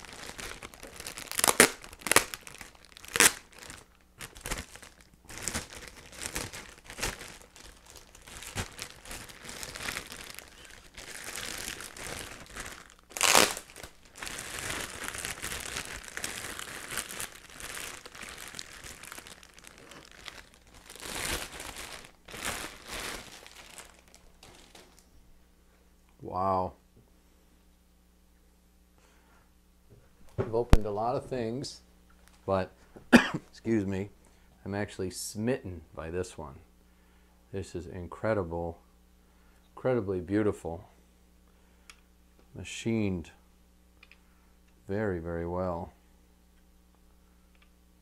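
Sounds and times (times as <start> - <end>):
plastic wrapping crinkling: 0.0 - 25.1.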